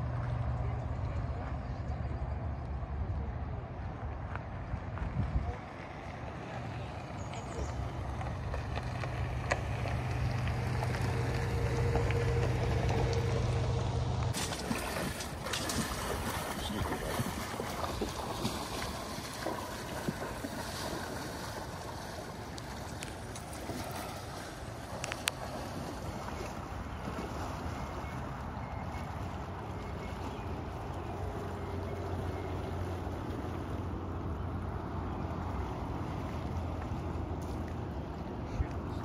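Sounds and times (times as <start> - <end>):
steady low rumble: 0.0 - 27.2
people wading through river: 0.0 - 39.0
water poured into river: 14.3 - 28.4.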